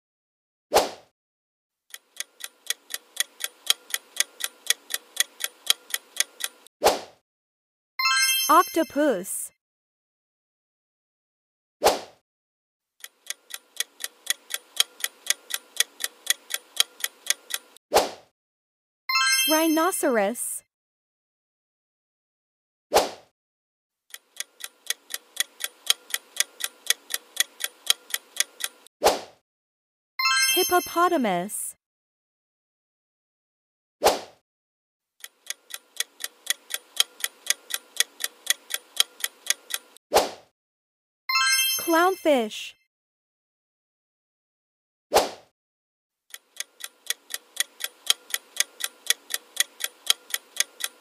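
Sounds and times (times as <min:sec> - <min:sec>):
clock ticking: 0:01.9 - 0:06.7, 0:13.0 - 0:17.8, 0:24.1 - 0:28.9, 0:35.2 - 0:40.0, 0:46.3 - 0:51.0.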